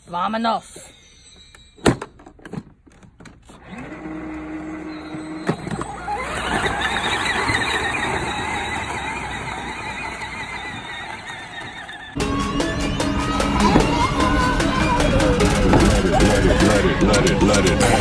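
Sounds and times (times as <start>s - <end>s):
plastic wheels crunching gravel: 3.5s - 12.2s
electric motor running: 3.6s - 5.4s.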